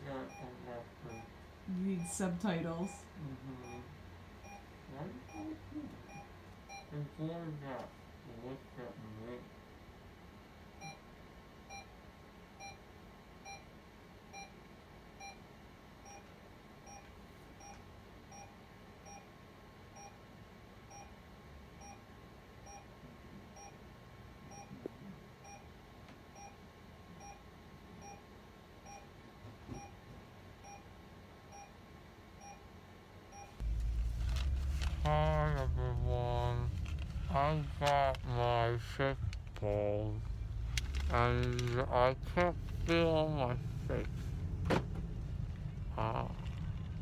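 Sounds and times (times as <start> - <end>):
monitor beeping softly: 0.0 - 9.3
faint steady hum: 0.0 - 47.0.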